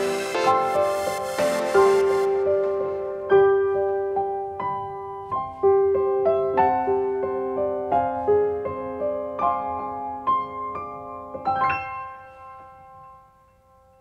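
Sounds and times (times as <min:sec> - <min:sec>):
gentle solo piano: 0:02.4 - 0:13.6.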